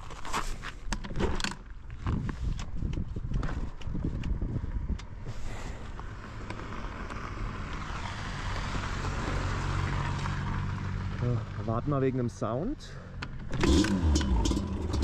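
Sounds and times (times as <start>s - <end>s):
vehicle engine running: 12.9s - 15.0s.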